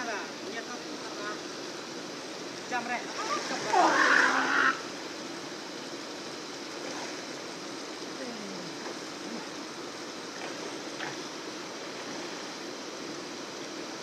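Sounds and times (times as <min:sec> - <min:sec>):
faint splashes: 0:02.5 - 0:05.0.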